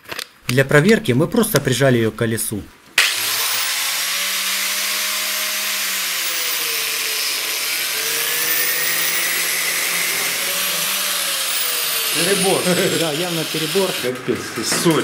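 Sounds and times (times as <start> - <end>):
angle grinder motor whine: 3.0 - 14.2.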